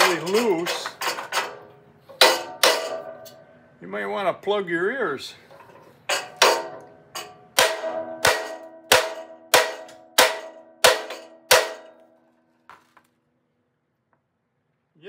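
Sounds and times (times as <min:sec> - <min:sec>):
hammer striking metal: 0:00.0 - 0:03.5, 0:06.0 - 0:12.2.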